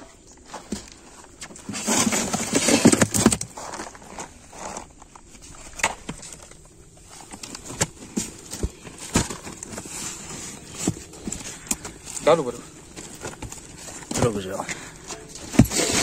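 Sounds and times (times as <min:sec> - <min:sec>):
fish sliding and thudding into box: 0:15.4 - 0:16.0.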